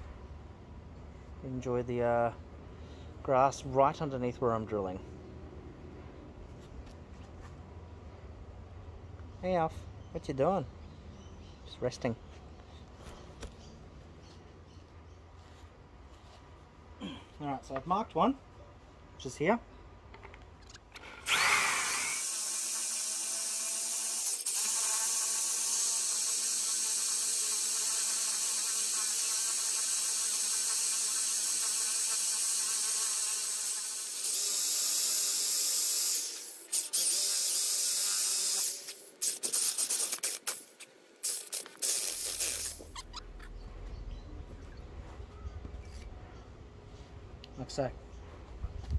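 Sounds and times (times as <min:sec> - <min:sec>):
electric drill boring into wood: 0:21.2 - 0:40.6.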